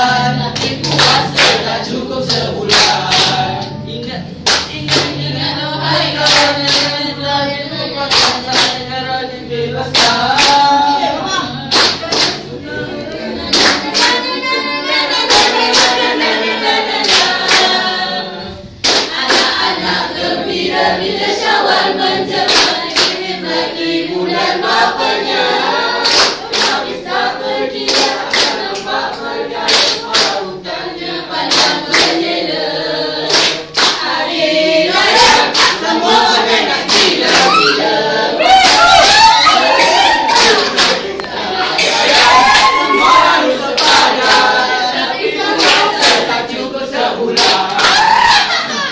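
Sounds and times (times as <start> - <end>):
group singing together: 0.0 - 48.9.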